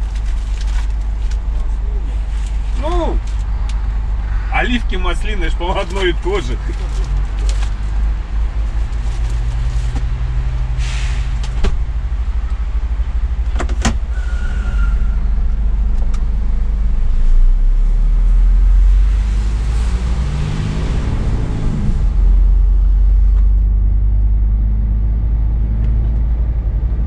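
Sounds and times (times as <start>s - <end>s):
truck diesel engine from cab: 0.0s - 27.0s
short hiss: 10.8s - 11.3s.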